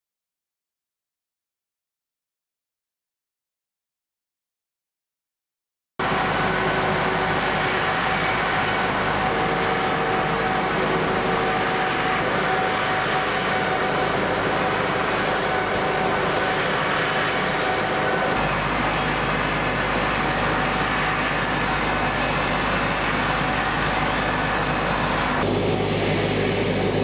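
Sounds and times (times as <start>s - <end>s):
machinery droning: 6.0s - 27.0s.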